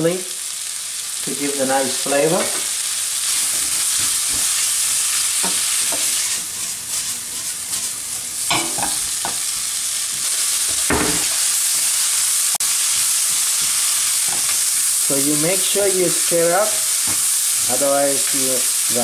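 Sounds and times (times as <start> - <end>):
food sizzling in oil: 0.0 - 19.0
spatula scraping and knocking pan: 3.4 - 9.5.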